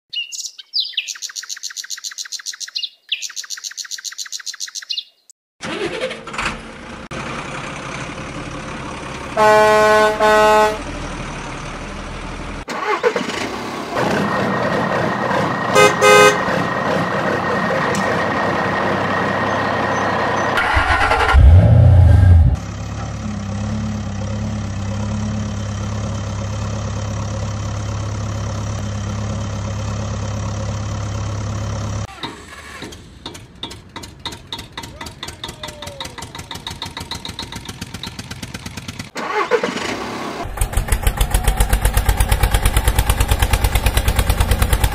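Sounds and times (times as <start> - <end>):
toy horn sounding: 9.4 - 10.8
simulated engine idling: 14.4 - 32.1, 40.5 - 44.9.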